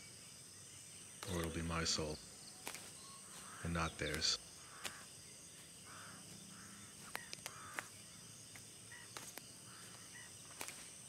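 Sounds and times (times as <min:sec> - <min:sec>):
crickets and insects trilling: 0:00.0 - 0:11.0
sharp clicks: 0:04.0 - 0:05.0.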